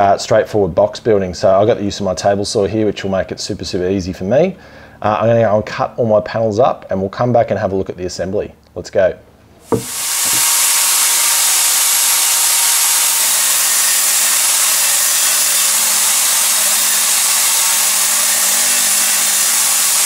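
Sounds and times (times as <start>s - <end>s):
table saw whirring: 9.6s - 20.0s.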